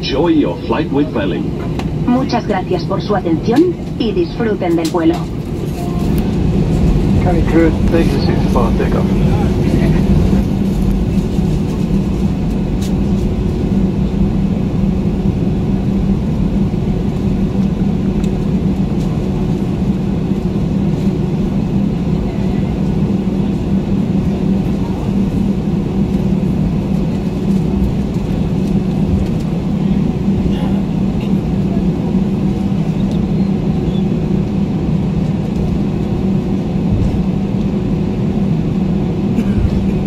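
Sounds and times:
aircraft cabin engine hum: 0.0s - 40.0s.

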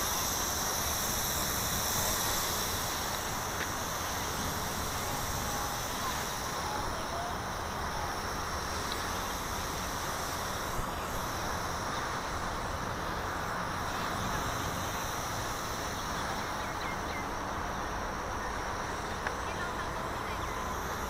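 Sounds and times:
drone propellers buzzing: 0.0s - 21.0s.

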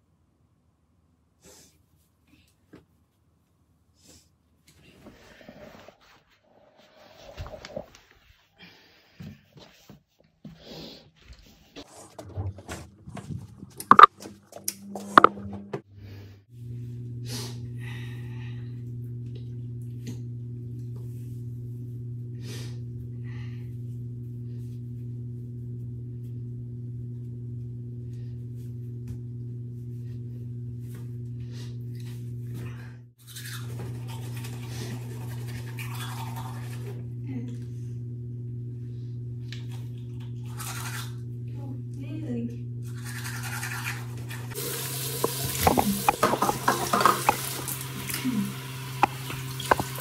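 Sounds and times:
small motor humming: 42.6s - 50.0s.

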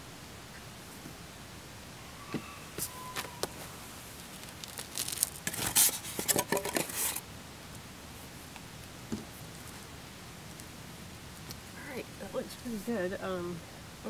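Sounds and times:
rustling and clattering: 2.8s - 7.2s.

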